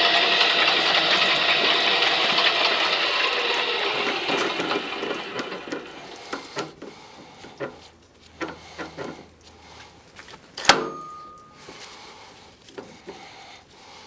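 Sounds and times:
machine running: 0.0s - 6.8s.

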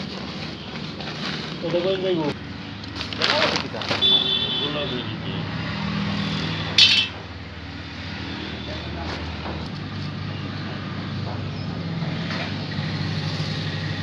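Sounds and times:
metallic clink on saw blades: 6.8s - 7.2s.

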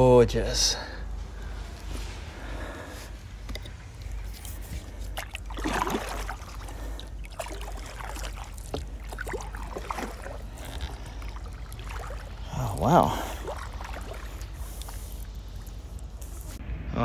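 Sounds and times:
water dripping: 3.5s - 16.6s
paddle strokes in water: 3.8s - 16.6s.

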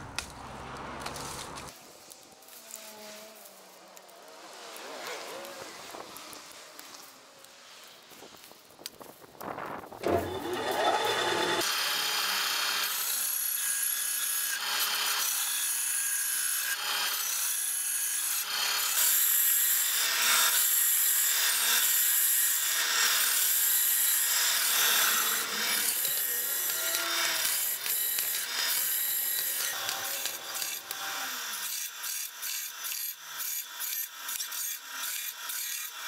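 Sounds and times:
dry branches breaking by hand: 0.0s - 2.7s
band saw cutting branch: 10.0s - 11.8s, 23.7s - 31.9s.

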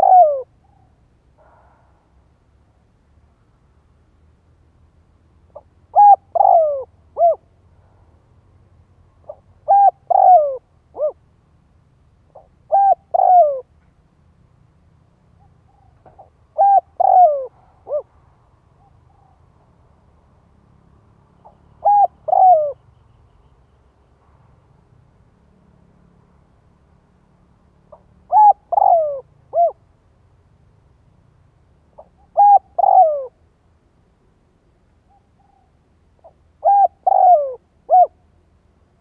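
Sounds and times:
dove cooing: 0.0s - 1.6s, 5.5s - 7.5s, 9.2s - 11.2s, 12.3s - 13.7s, 15.4s - 18.1s, 21.4s - 22.8s, 27.9s - 29.8s, 32.0s - 33.4s, 35.1s - 38.2s.

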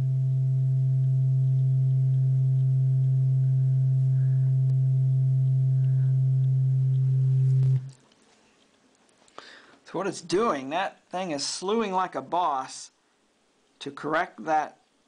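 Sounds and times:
low sine-wave test tone: 0.0s - 8.0s.

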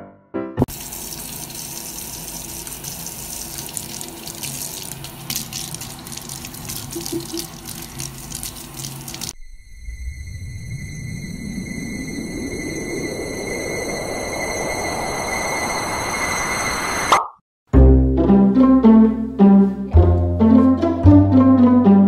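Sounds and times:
tap water running into sink: 0.6s - 9.4s.

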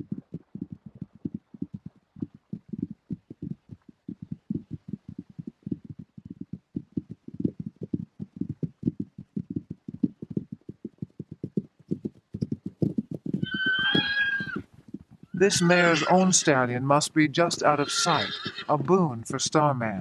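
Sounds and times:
horse hooves galloping: 0.0s - 20.0s
horse squealing: 13.3s - 14.7s, 15.3s - 16.5s, 17.6s - 18.8s.

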